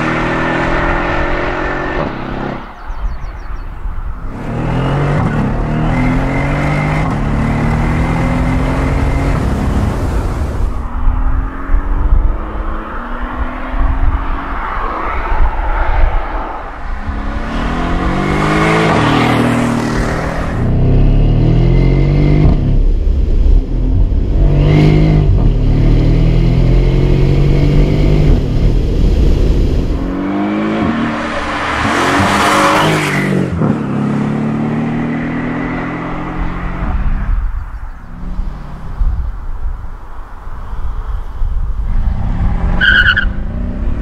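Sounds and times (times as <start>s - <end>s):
car engine accelerating through gears: 4.3s - 10.6s.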